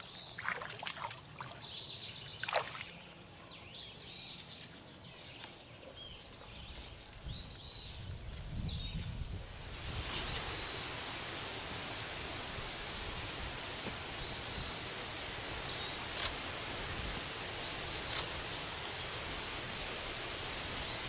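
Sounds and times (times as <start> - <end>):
rattlesnake rattling: 8.9 - 16.3, 17.3 - 21.0.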